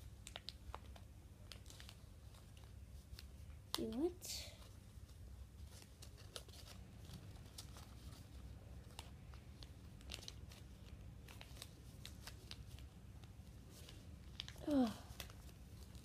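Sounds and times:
paper crinkling: 0.0s - 16.0s.

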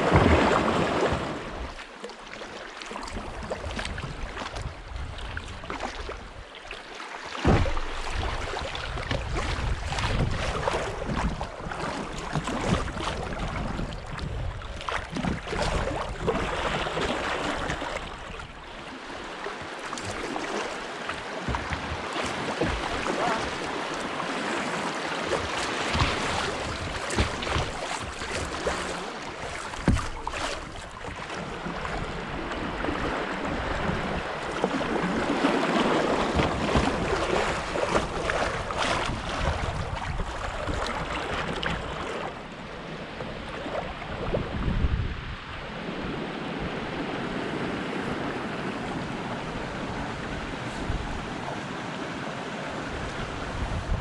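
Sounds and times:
river water rushing: 0.0s - 4.3s, 15.0s - 54.0s
paddle splashes and knocks: 0.0s - 54.0s
wind buffeting microphone: 7.5s - 17.1s, 36.1s - 41.8s, 43.8s - 51.6s, 52.8s - 54.0s.

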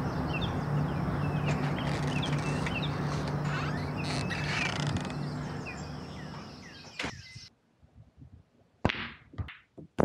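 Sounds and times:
birds chirping: 0.0s - 7.5s
outdoor background noise: 0.0s - 10.0s.

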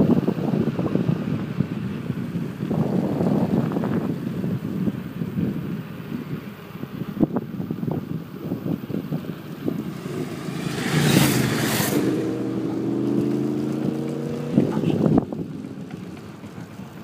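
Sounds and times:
motorcycles passing: 8.6s - 17.0s.

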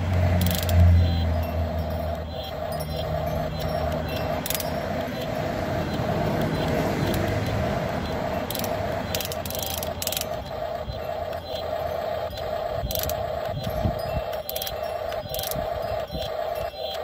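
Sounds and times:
pulsing hum: 0.0s - 17.0s
small electric motors whirring: 0.0s - 17.0s.

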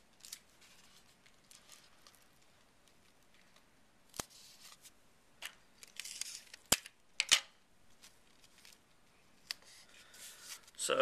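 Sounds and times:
paper rustling: 0.2s - 4.9s, 9.4s - 10.8s.

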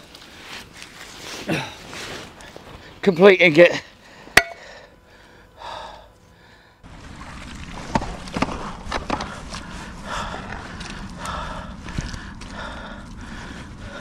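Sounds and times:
rope rustling: 0.0s - 3.0s
mud squelching: 6.8s - 13.6s.

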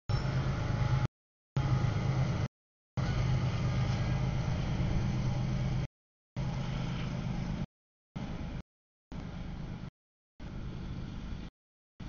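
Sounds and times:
freight train wheels rumbling: 0.1s - 7.6s.

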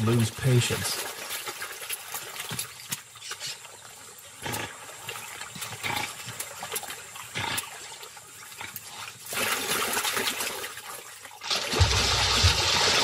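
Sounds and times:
otters growling and snorting: 4.4s - 6.6s.

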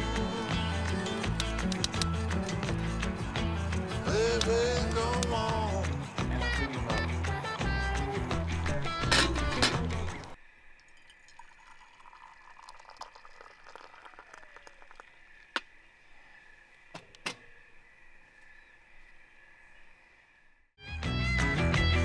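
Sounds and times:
coffee pouring into mug: 10.2s - 15.5s.

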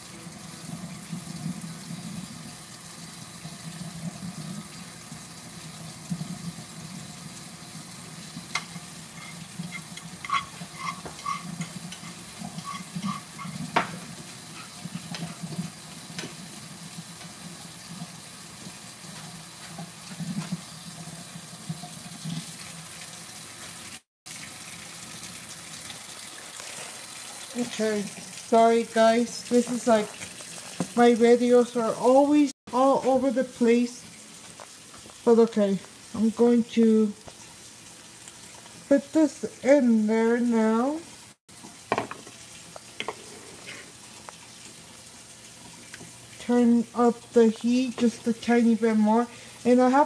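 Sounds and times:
water running from tap into sink: 0.0s - 50.0s
kitchenware clinking: 8.5s - 15.5s.

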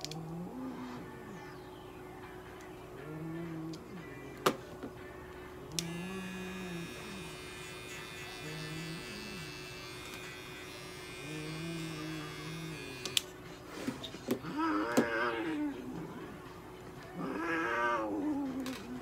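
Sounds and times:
pet clipper buzzing: 5.7s - 13.4s.

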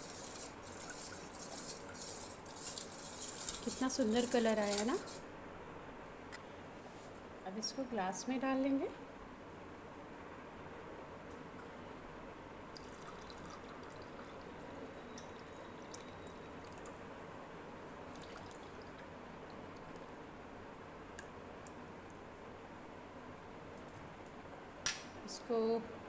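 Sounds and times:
liquid pouring into glass: 12.7s - 17.0s, 18.1s - 19.1s
small drips: 12.7s - 17.0s, 18.0s - 20.2s.

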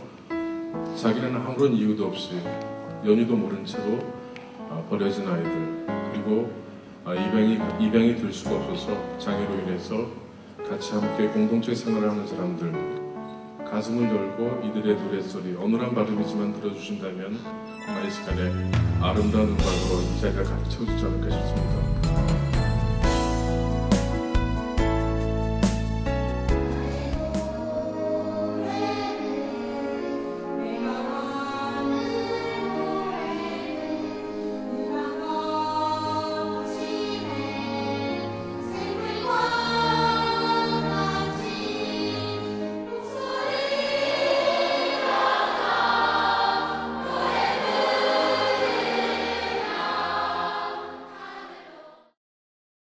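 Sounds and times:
mixed choir singing: 26.5s - 52.2s.

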